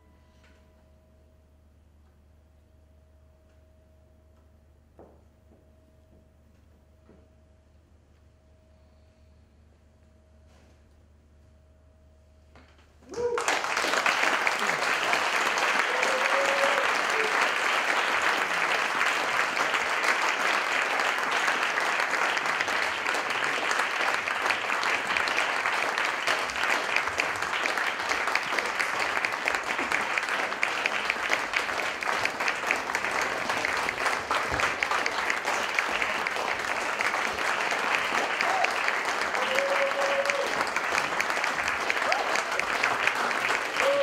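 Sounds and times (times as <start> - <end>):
audience applauding: 13.1 - 44.0.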